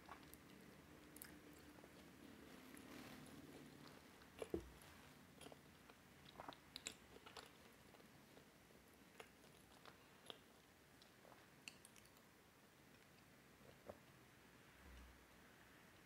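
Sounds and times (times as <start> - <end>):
person chewing: 3.8 - 8.5.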